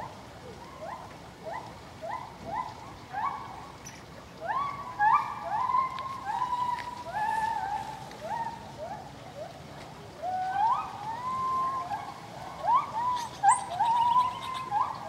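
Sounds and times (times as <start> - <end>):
monkey squeaking calls: 13.1 - 15.0.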